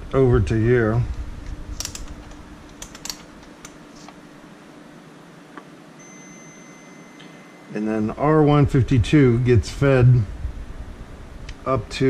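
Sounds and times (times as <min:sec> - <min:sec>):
faint low hum: 0:00.0 - 0:12.0
test probes clicking on circuit board: 0:01.8 - 0:03.8
steady high meter beep: 0:06.0 - 0:08.5.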